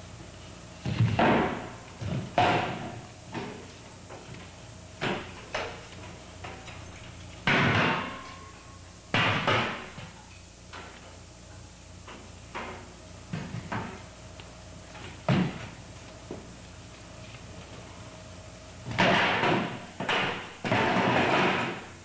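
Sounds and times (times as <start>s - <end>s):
folding chairs clattering on floor: 18.9s - 21.9s.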